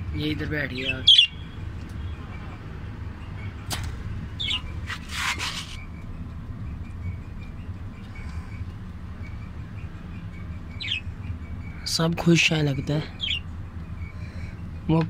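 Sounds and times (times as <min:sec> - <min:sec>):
budgerigars chirping: 0:00.2 - 0:02.6, 0:04.3 - 0:04.8, 0:09.2 - 0:14.9
short rustle: 0:04.8 - 0:05.8.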